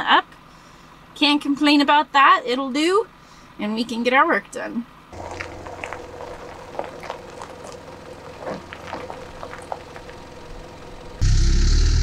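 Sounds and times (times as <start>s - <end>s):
truck engine humming: 5.1s - 12.0s
stones crackling under tyres: 5.2s - 11.2s.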